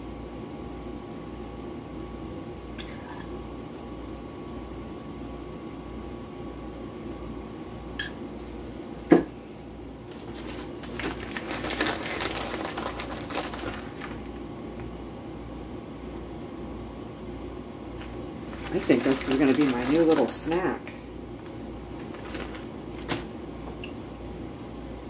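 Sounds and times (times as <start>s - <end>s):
kitchen hum: 0.0s - 25.0s
plastic bag crinkling: 10.1s - 14.4s, 18.0s - 23.3s.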